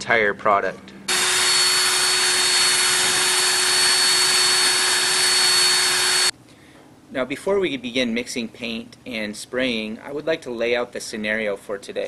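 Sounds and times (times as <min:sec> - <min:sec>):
power drill whining: 0:01.1 - 0:06.3.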